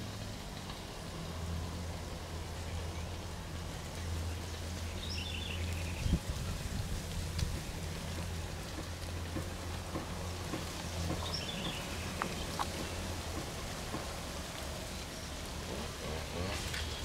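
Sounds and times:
outdoor background hiss: 0:00.0 - 0:17.0
light ticks: 0:07.1 - 0:15.1.

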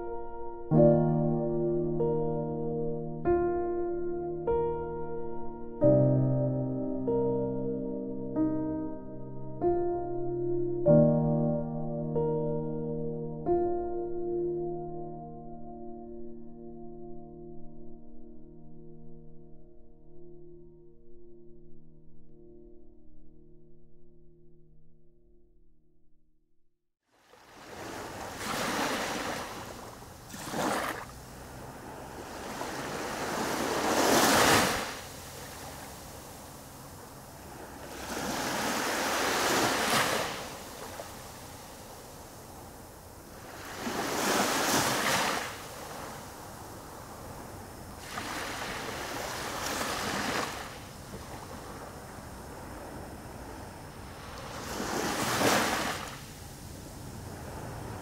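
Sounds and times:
small waves washing on beach: 0:27.1 - 0:58.0.

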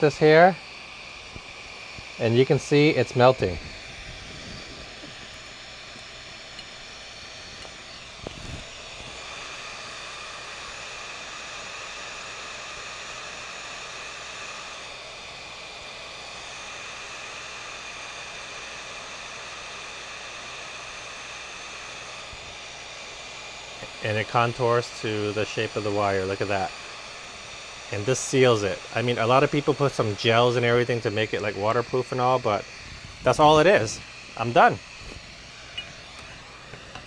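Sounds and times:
heat gun blowing: 0:00.0 - 0:37.0.

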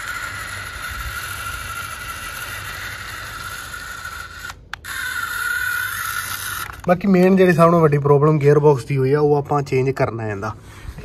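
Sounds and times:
toy motor whining: 0:00.0 - 0:07.8.

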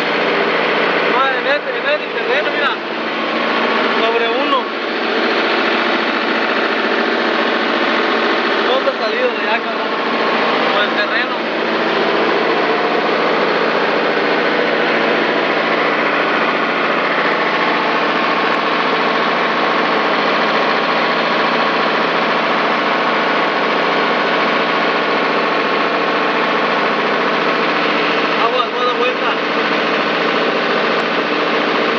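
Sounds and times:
tractor diesel engine running: 0:00.0 - 0:31.9.

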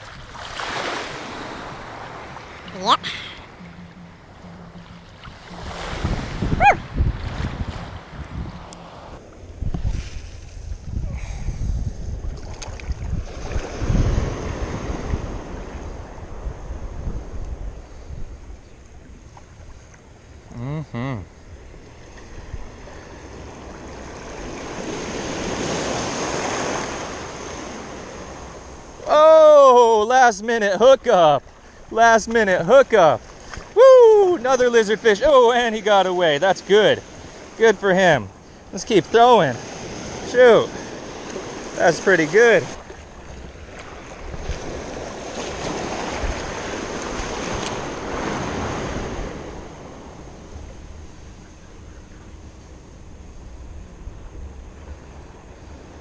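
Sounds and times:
sea wave washing and foaming: 0:00.0 - 0:09.2, 0:22.7 - 0:51.2
wind buffeting microphone: 0:01.0 - 0:18.6, 0:42.7 - 0:51.4
man exclaiming loudly: 0:29.0 - 0:31.4, 0:33.8 - 0:36.2.

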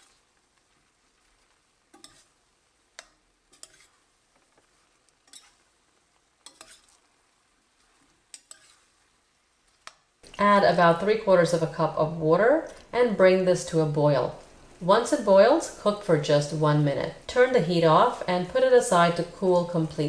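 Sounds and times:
faint sizzling: 0:00.0 - 0:20.0
utensil scraping a pan: 0:01.2 - 0:10.4.

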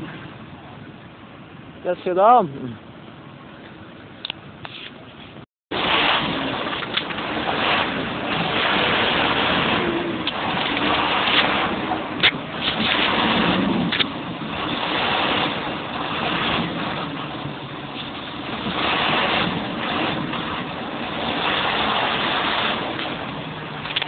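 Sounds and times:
tractor diesel engine running: 0:00.0 - 0:24.0
wind noise on microphone: 0:04.1 - 0:24.0.

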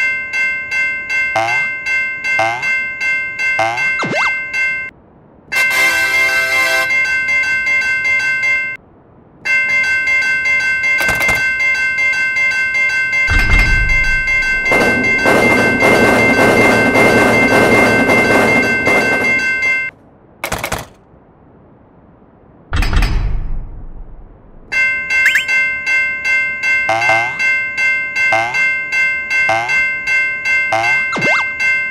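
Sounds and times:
crossing warning bell ringing: 0:00.0 - 0:20.0, 0:23.3 - 0:31.9
rumbling rush of noise: 0:13.3 - 0:24.8.

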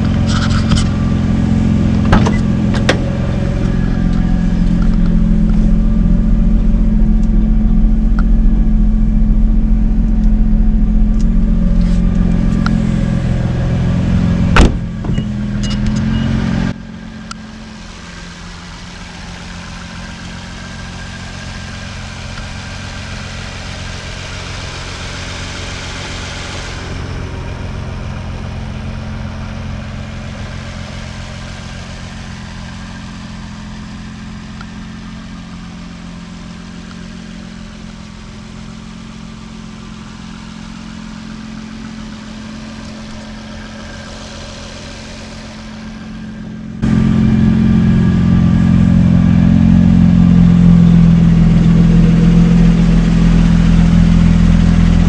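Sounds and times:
car engine idling: 0:00.0 - 0:55.0
sharp knock: 0:14.6 - 0:15.3.

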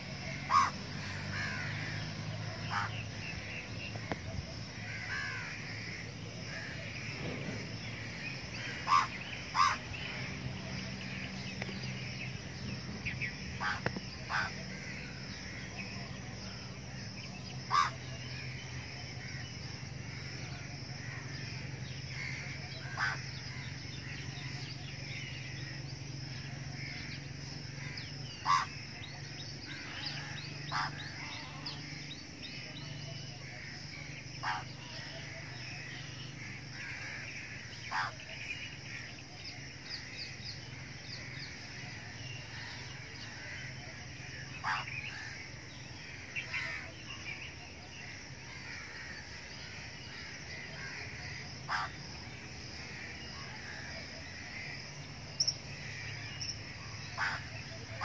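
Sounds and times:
harsh bird call: 0:00.0 - 0:04.2, 0:04.8 - 0:12.4
birds chirping and twittering: 0:00.0 - 0:58.0.

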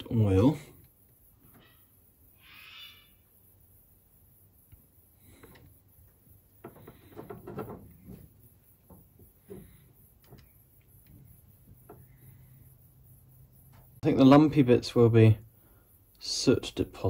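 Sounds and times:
faint low hum: 0:00.0 - 0:17.0
light handling rustles and knocks: 0:06.6 - 0:12.2.

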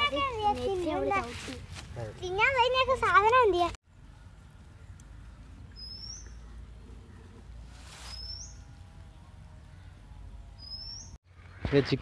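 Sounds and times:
bird upward-sweeping call: 0:07.9 - 0:08.7.

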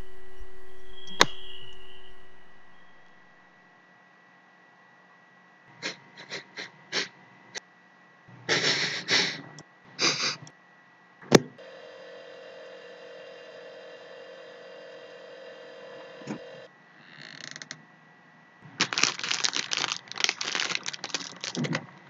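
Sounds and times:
refrigerator humming: 0:00.0 - 0:22.0
sharp click: 0:01.0 - 0:01.9.

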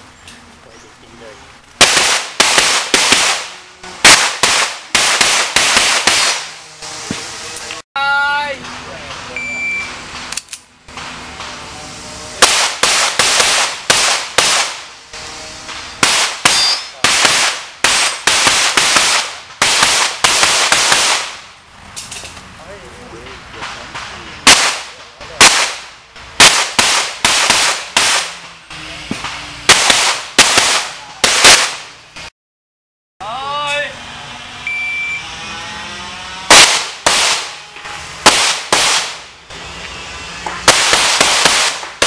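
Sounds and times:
handgun shots: 0:01.8 - 0:06.5, 0:36.5 - 0:37.5.

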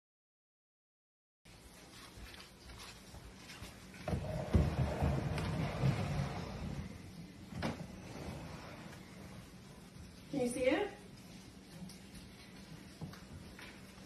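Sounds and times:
sliding glass door rolling open: 0:04.0 - 0:09.4.

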